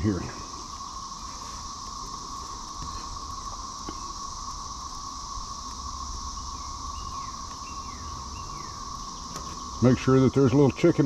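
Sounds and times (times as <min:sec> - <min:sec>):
insects droning: 0:00.0 - 0:11.0
bird chirps: 0:06.3 - 0:10.6.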